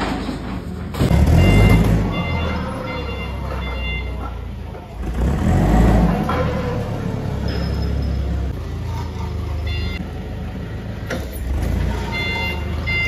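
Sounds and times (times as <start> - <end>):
forklift engine rumble: 0.0 - 13.0
reversing alarm beeping: 1.1 - 4.6, 9.5 - 10.1, 11.9 - 13.0.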